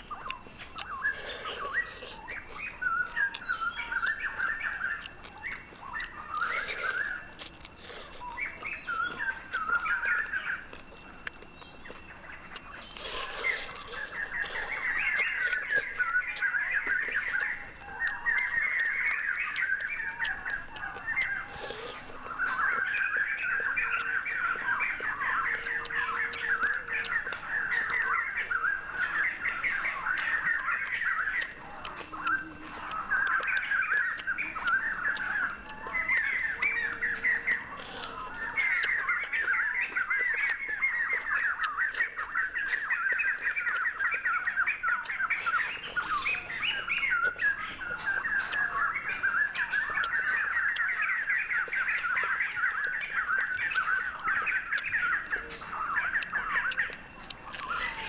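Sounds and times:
birds chirping and squawking: 0.0s - 58.0s.

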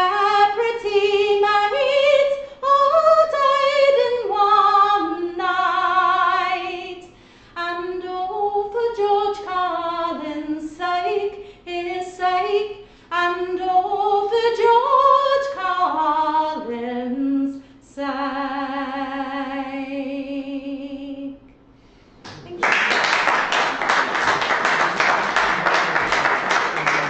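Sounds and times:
woman singing unaccompanied: 0.0s - 21.4s.

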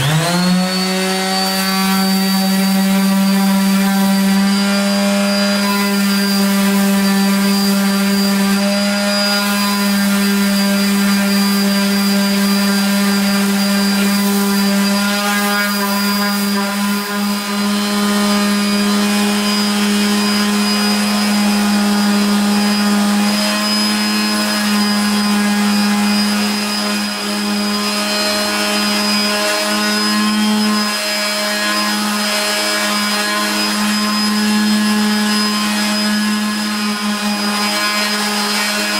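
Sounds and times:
belt sander sanding wood: 0.0s - 38.9s.

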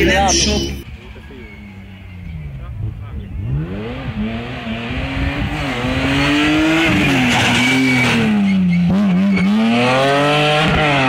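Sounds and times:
rally car engine under throttle: 0.0s - 11.0s.

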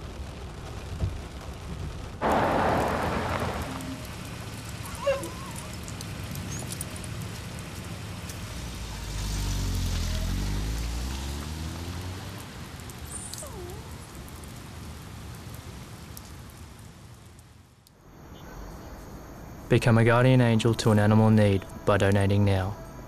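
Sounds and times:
rain on pavement: 0.0s - 18.8s, 19.8s - 22.8s
dog whimpering: 4.8s - 5.8s, 13.1s - 14.0s
car engine driving off: 8.4s - 12.7s.

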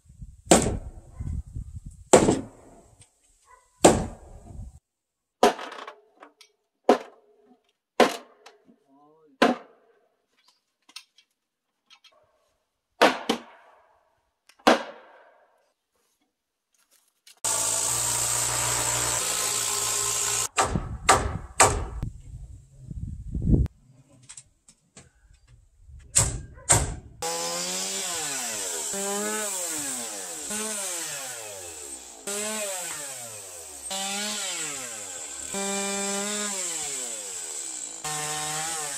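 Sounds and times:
chainsaw cutting logs: 17.4s - 22.0s, 27.2s - 38.9s.

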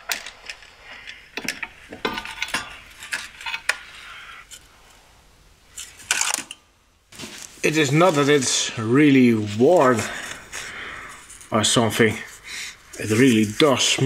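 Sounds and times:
metal clinks and knocks: 0.0s - 3.8s
scraping rustle: 7.1s - 14.0s.

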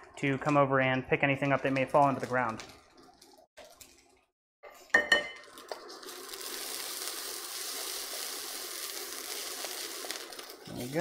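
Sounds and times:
rice sizzling in wok: 4.8s - 11.0s.

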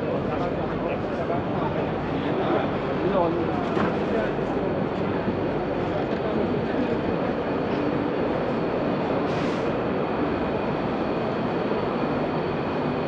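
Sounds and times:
brief hiss: 9.3s - 9.7s.

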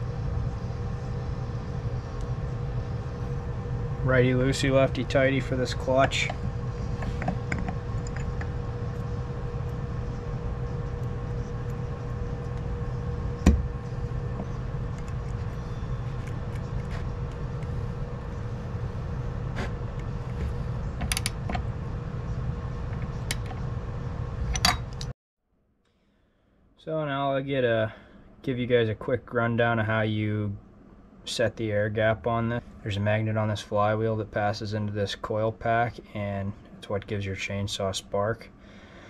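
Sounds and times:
low hum: 0.0s - 25.1s.

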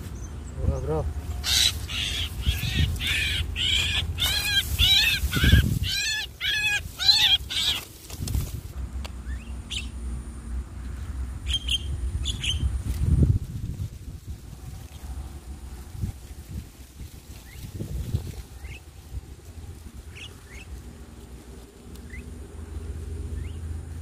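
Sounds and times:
low rumble of wind: 0.0s - 24.0s
birds making harsh calls: 0.1s - 8.6s, 20.0s - 20.9s.

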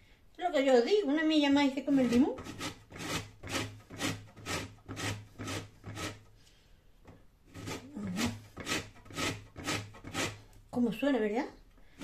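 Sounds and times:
lemon rasping on a grater: 7.5s - 10.4s.

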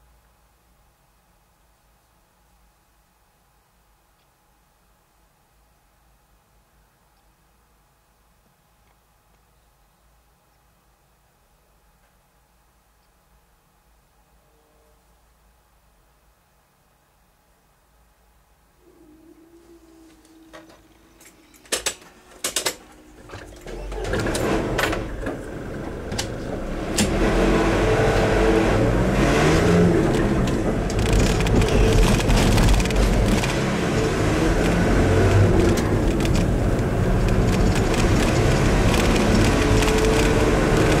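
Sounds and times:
car engine and tyre noise: 23.6s - 41.0s
sharp clicks: 30.1s - 33.6s, 34.6s - 41.0s.

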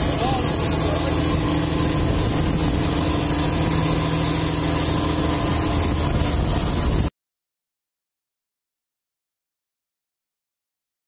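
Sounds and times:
boat engine running: 0.0s - 7.1s
high-pitched whine: 0.0s - 7.1s.

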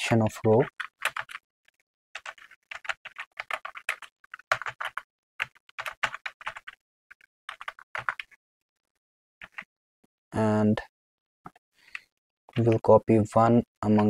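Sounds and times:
keyboard typing: 0.4s - 8.4s, 9.4s - 9.7s.

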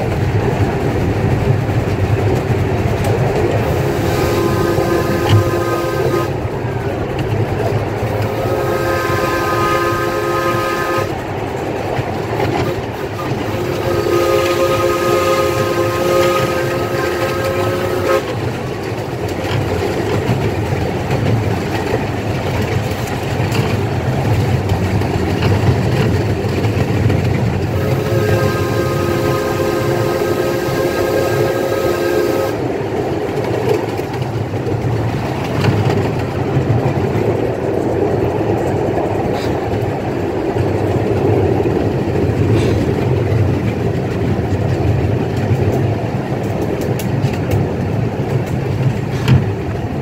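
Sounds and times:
locomotive rumble and clatter on track: 0.0s - 50.0s
steam whistle blasts: 3.6s - 6.4s, 8.2s - 11.2s, 12.6s - 18.4s, 27.7s - 32.7s.

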